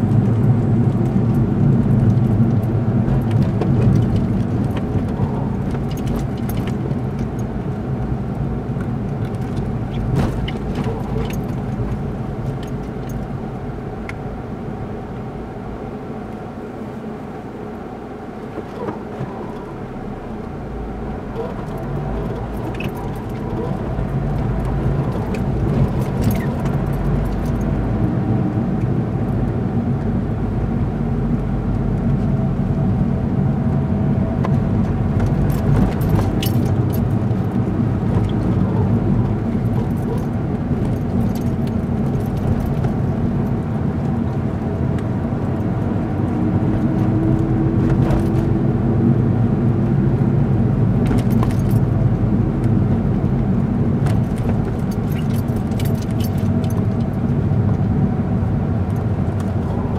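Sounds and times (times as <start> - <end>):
road and engine noise in car: 0.0 - 59.9
light clicks and rattles: 54.0 - 57.8.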